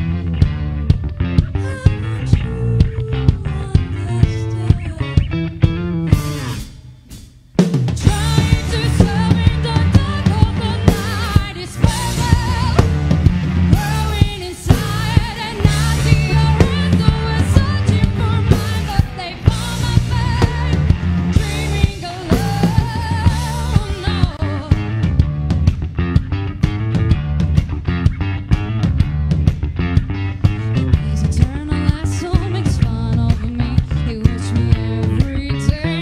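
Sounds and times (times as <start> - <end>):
live band playing: 0.0 - 36.0
woman singing: 1.4 - 5.5, 8.0 - 25.1, 30.8 - 36.0.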